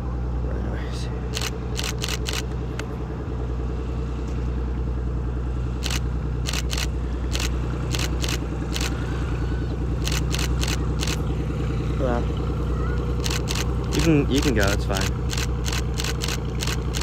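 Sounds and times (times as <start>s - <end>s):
propeller engine drone: 0.0s - 17.0s
camera shutter clicks: 1.4s - 2.5s, 5.8s - 9.0s, 10.0s - 11.2s, 13.1s - 17.0s.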